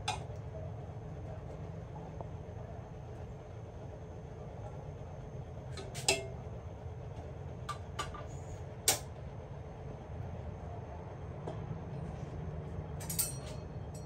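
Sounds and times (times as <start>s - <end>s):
metal utensil clinking on pot: 13.0s - 14.0s.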